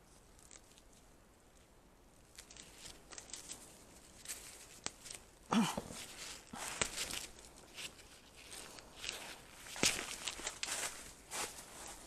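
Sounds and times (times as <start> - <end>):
leaves and stems rustling: 0.0 - 12.0
stems snapping and tearing: 0.3 - 1.0, 2.3 - 10.8.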